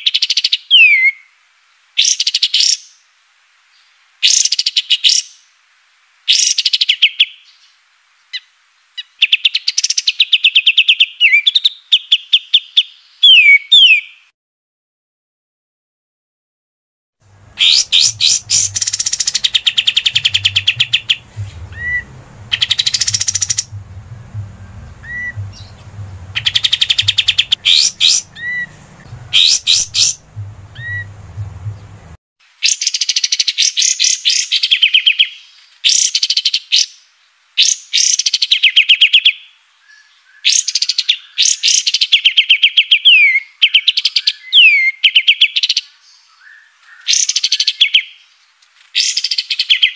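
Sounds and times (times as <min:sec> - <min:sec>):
low hum: 0:17.2 - 0:32.2
songbird chattering: 0:17.3 - 0:32.2.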